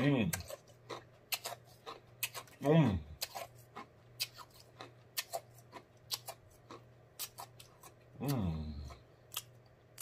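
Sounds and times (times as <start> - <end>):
man humming mmm: 8.2 - 9.0.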